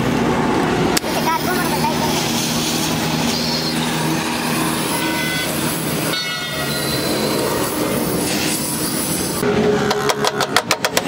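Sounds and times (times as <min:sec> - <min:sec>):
loud street traffic: 0:00.0 - 0:11.0
gas welding torch hissing: 0:01.0 - 0:09.4
vehicle horn: 0:04.8 - 0:07.3.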